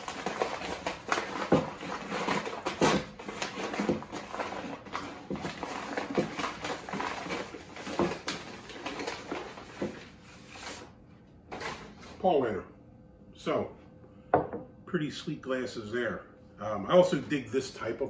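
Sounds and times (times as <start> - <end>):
packing paper rustling and crinkling: 0.0 - 12.2.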